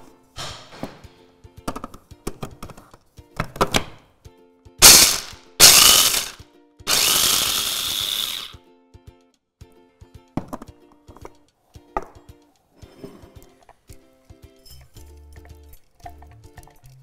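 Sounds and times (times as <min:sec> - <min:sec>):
chopper motor grinding nuts: 0:04.8 - 0:08.6.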